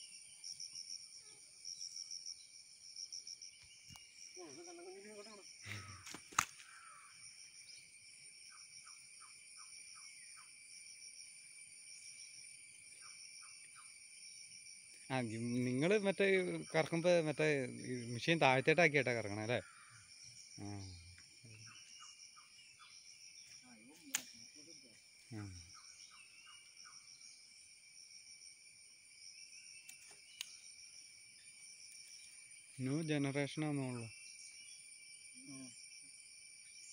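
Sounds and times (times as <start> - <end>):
insect chorus: 0.0 - 36.9
faint clicks: 29.8 - 30.6.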